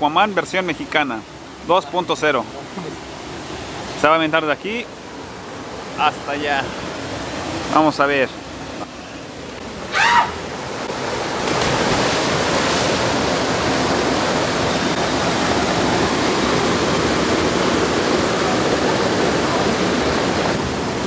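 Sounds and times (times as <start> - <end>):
river water rushing: 0.0 - 21.0
person yelling: 9.9 - 10.4.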